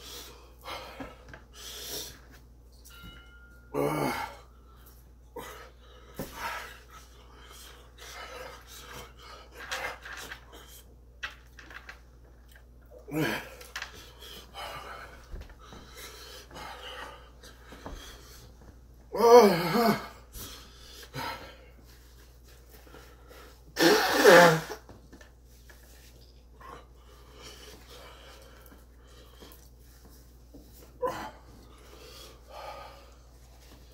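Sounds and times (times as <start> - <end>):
man panting and wheezing: 0.0 - 2.4, 3.7 - 11.0, 13.0 - 22.0, 30.8 - 33.9
man strained vocal outbursts: 3.8 - 4.4, 13.0 - 13.7, 19.1 - 20.2.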